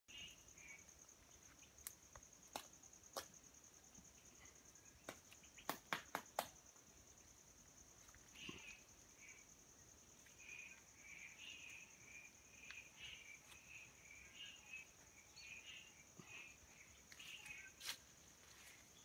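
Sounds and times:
insect trilling: 6.9 - 18.0.

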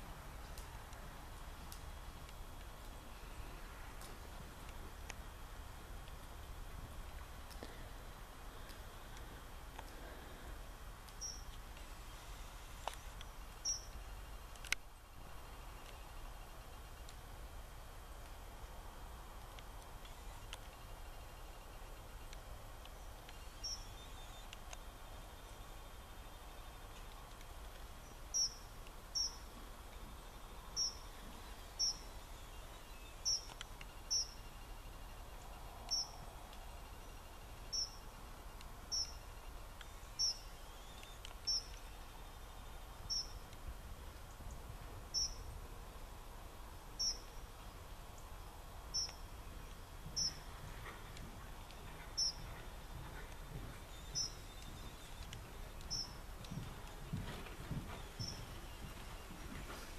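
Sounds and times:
horse hooves on sand: 49.2 - 59.9.

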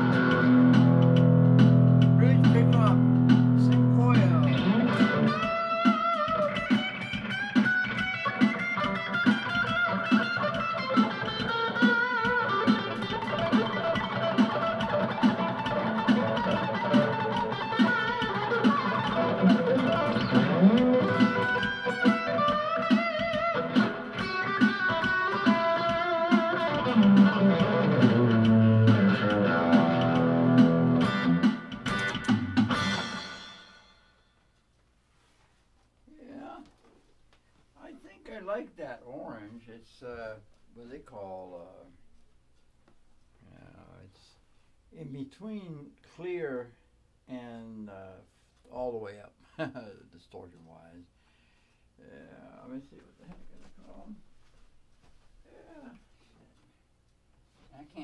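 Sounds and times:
overdriven electric guitar: 0.0 - 33.7.

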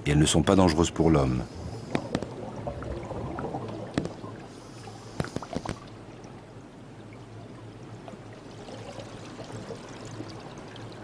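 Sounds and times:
water bubbling underwater: 1.4 - 11.0.

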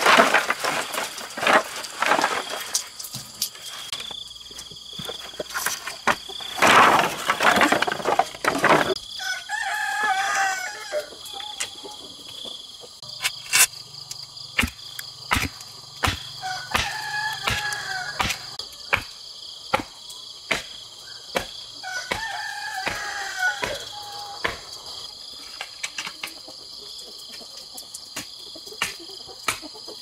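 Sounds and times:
rooster crowing: 9.0 - 12.8, 16.2 - 18.7, 21.8 - 24.7
sharp knocks: 14.6 - 19.1.

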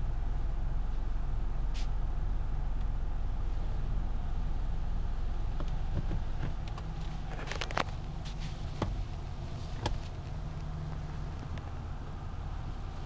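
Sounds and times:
car wash gantry rumbling: 0.0 - 13.0.

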